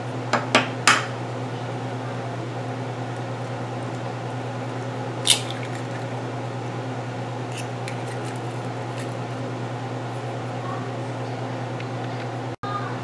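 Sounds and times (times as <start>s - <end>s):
steady low hum: 0.0s - 13.0s
egg shell crackling: 4.7s - 6.7s, 7.4s - 9.4s.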